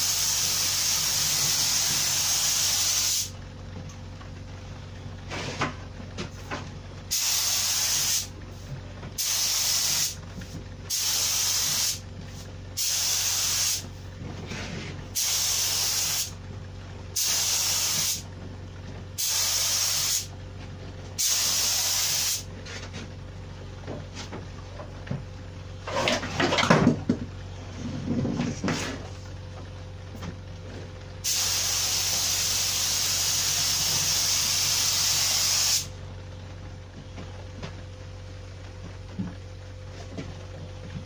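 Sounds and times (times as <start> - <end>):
paint spray gun hissing: 0.0 - 3.3, 7.1 - 8.3, 9.2 - 10.2, 10.9 - 12.0, 12.8 - 13.8, 15.2 - 16.4, 17.2 - 18.2, 19.2 - 20.3, 21.2 - 22.5, 31.2 - 35.9.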